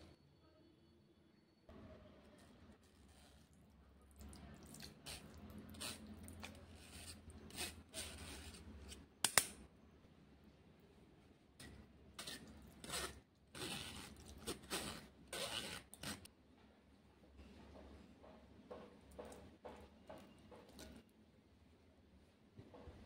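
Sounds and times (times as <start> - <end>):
metal strainer scraping glass bowl: 12.2 - 16.3.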